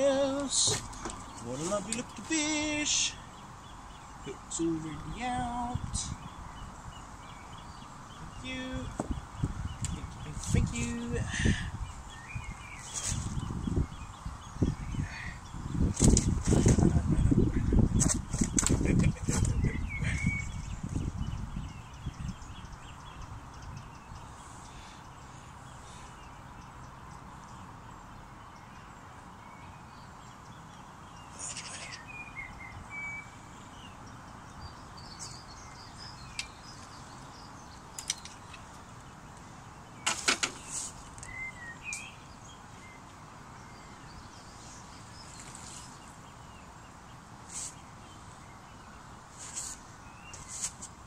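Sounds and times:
bird chirps: 0.0s - 50.9s
outdoor background hiss: 0.0s - 51.0s
fishing tackle clicks and knocks: 38.0s - 38.7s.

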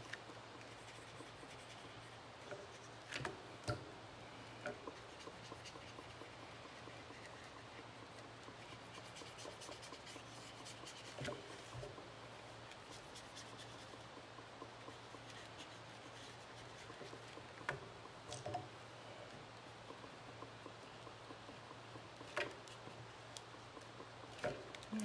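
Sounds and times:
paintbrush scratching on paper: 0.0s - 3.0s, 4.8s - 12.1s, 12.7s - 17.6s.

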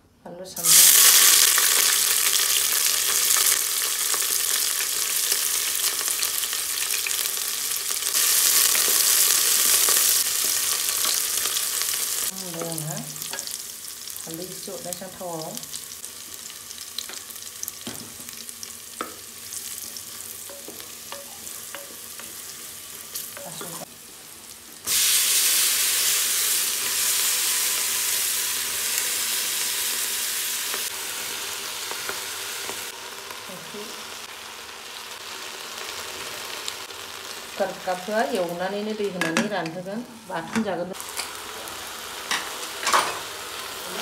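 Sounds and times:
food sizzling in oil: 0.6s - 44.0s.

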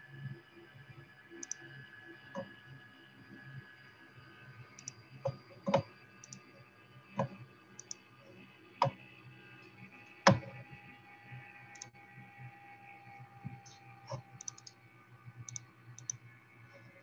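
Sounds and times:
faint steady hum: 0.0s - 17.0s
faint high ticks: 1.4s - 1.6s, 4.8s - 5.0s, 7.2s - 8.0s, 11.7s - 11.9s, 14.4s - 14.8s, 15.5s - 16.2s.

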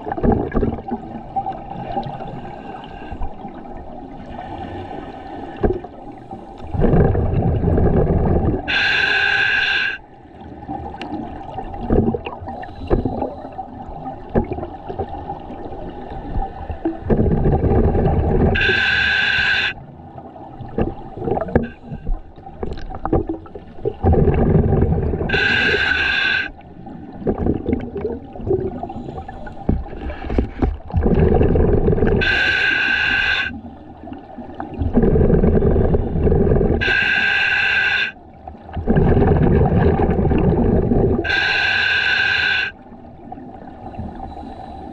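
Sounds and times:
bubbly exhalations: 6.7s - 8.8s, 11.7s - 13.4s, 16.8s - 18.9s, 20.7s - 26.5s, 27.2s - 32.6s, 34.7s - 37.1s, 38.8s - 41.5s
hissing regulator inhalations: 7.8s - 10.0s, 18.2s - 19.8s, 25.3s - 26.6s, 32.1s - 33.6s, 35.3s - 38.2s, 41.2s - 42.8s.

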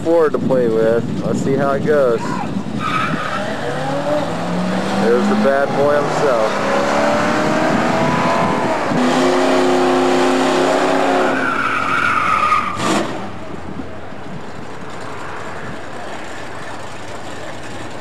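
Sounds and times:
tyres squealing: 2.2s - 6.6s, 11.0s - 12.9s
car engine at high revs: 2.8s - 11.6s.

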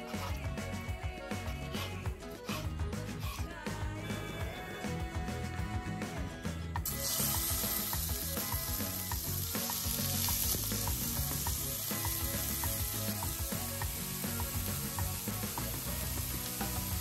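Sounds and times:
chicken sizzling in oil: 6.8s - 17.0s.

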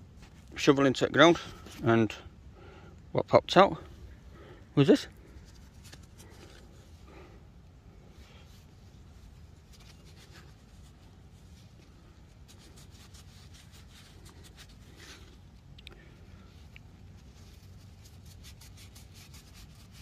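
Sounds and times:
low steady rumble: 0.0s - 20.0s
coin being rubbed clean: 17.8s - 20.0s.

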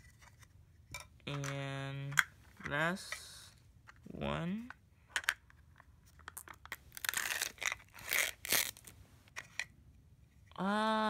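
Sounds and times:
packaging crinkling and tearing: 6.2s - 9.0s.

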